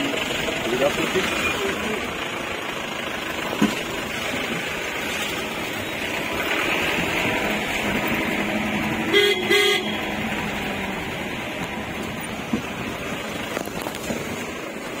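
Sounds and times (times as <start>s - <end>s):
jeep engine running: 0.0s - 15.0s
vehicle horn honking: 9.1s - 10.2s.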